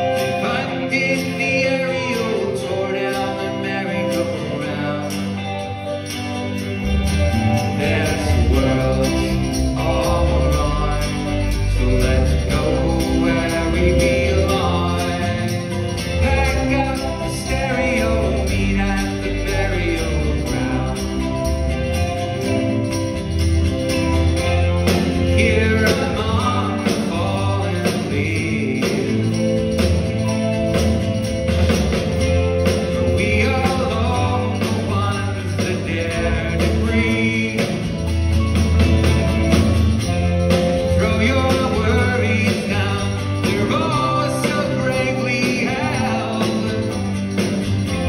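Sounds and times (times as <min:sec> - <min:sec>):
acoustic guitar: 0:00.0 - 0:48.0
bass: 0:00.0 - 0:48.0
drums: 0:00.0 - 0:48.0
jingling percussion: 0:00.0 - 0:48.0.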